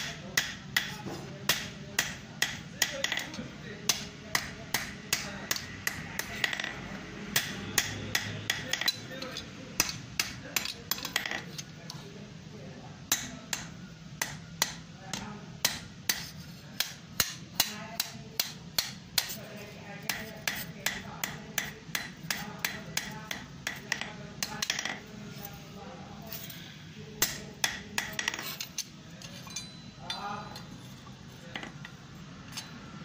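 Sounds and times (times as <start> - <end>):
hammer striking metal on anvil: 0.0 - 3.2.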